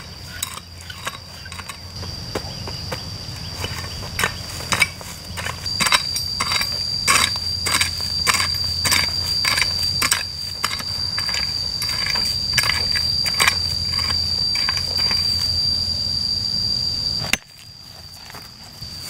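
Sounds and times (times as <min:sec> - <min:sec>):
steady high whine: 0:00.0 - 0:19.0
mattock chopping stony earth: 0:03.6 - 0:15.3.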